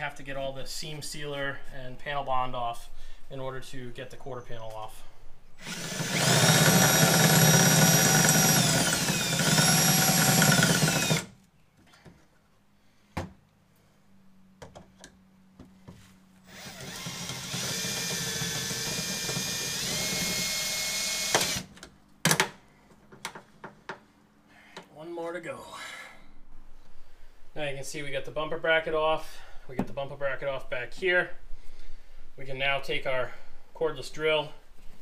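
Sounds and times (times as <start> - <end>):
cordless drill whining: 5.6 - 11.4, 16.5 - 21.7.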